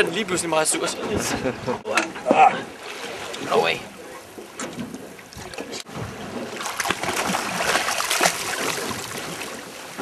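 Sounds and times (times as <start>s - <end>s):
fish thrashing and splashing: 6.2s - 9.7s.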